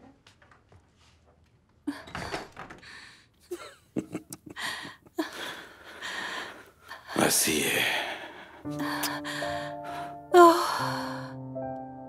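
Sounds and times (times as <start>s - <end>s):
people breathing: 4.5s - 11.4s.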